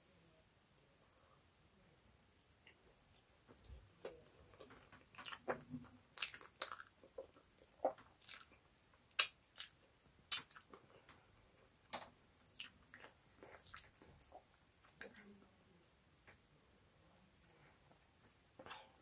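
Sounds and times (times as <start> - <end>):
wet chewing: 4.0 - 10.9, 12.4 - 15.3
lip smacks and mouth clicks: 5.2 - 10.8, 12.5 - 14.4.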